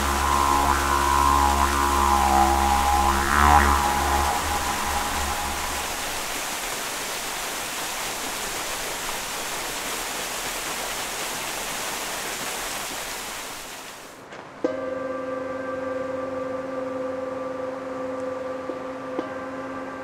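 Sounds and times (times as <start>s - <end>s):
small waterfall splashing: 0.0s - 14.3s.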